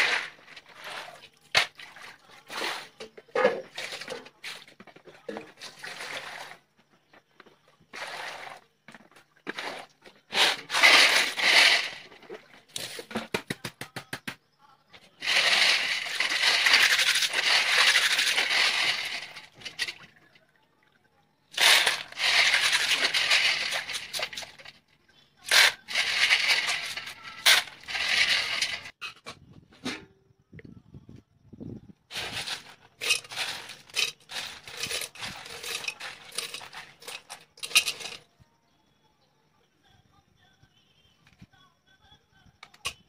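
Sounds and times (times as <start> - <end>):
snail shells scraping and clattering: 0.0 - 1.7, 9.5 - 13.2, 15.2 - 20.0, 21.6 - 24.8, 25.4 - 29.2, 32.1 - 38.3.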